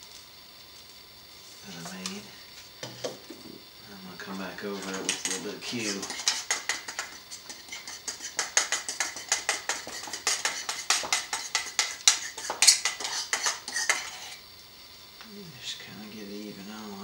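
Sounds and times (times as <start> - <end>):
basting brush slapping sauce: 4.6 - 14.4.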